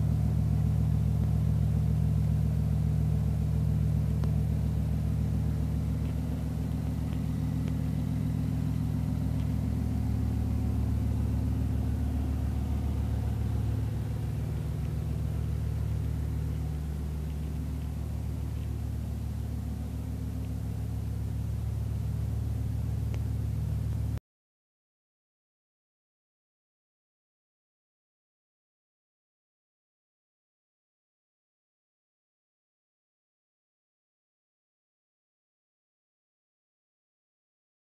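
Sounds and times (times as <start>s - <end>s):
car engine idling: 0.0s - 24.2s.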